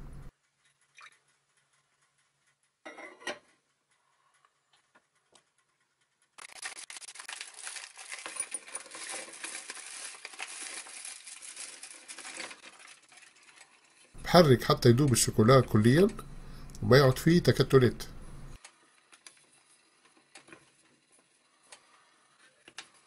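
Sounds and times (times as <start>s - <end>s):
chocolate pieces shaken into bowl: 6.4s - 13.7s
wrapper crinkling and tearing: 6.4s - 14.1s.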